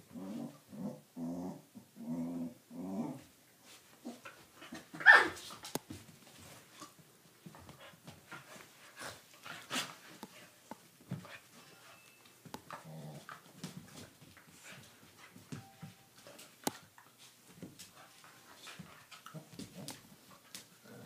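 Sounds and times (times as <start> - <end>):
dog growls: 0.1 - 3.2, 12.8 - 13.3
paws scuffling on floor: 3.7 - 20.9.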